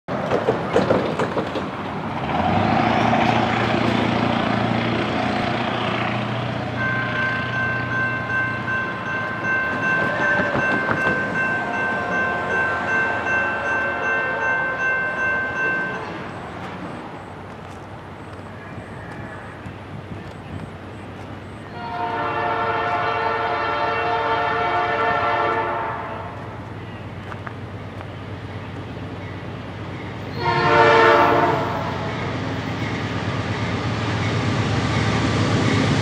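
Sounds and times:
engine rumbling: 0.1s - 21.8s
locomotive air horn blast: 21.7s - 26.4s, 30.3s - 32.1s.

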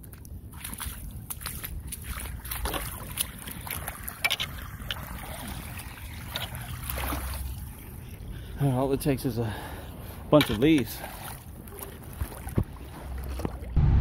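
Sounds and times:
small water splashes: 0.0s - 13.8s
wind rumble on microphone: 11.4s - 14.0s.

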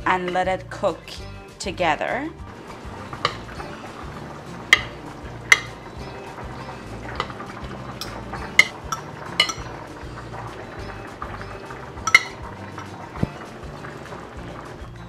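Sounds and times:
background music: 0.0s - 15.0s
metal utensil clinking on wok: 8.0s - 9.8s, 12.0s - 12.4s.

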